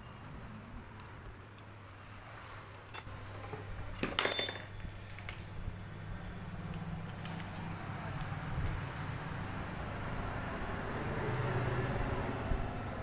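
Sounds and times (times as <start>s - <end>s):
metal spanners clinking: 2.9s - 4.9s.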